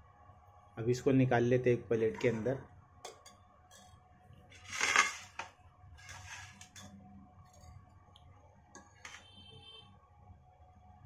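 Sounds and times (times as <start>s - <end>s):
plate scraping on stone countertop: 4.5s - 6.9s.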